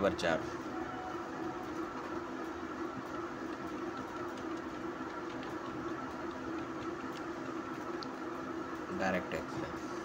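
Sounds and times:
steady background hum: 0:00.0 - 0:10.0.

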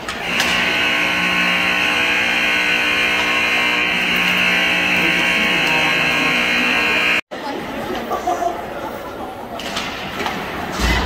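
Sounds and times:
horn blast: 0:00.2 - 0:07.2.

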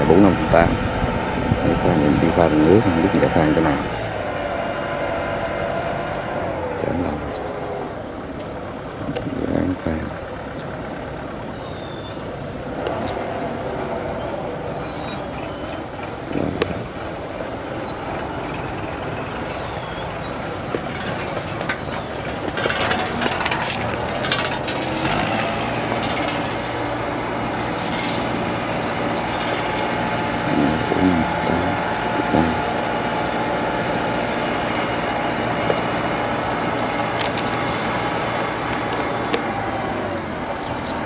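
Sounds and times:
tractor diesel engine running: 0:00.0 - 0:41.0
metallic rattling: 0:12.3 - 0:41.0.

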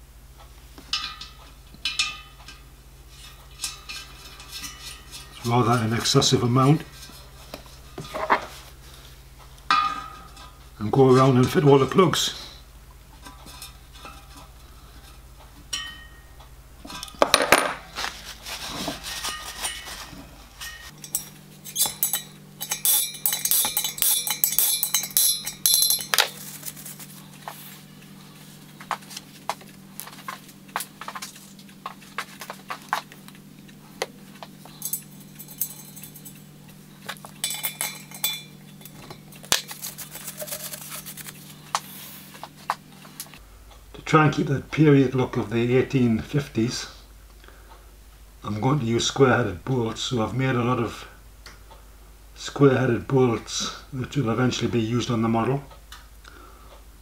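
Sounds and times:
light metallic clinks and taps: 0:21.0 - 0:26.4, 0:34.6 - 0:36.4, 0:37.1 - 0:39.3.

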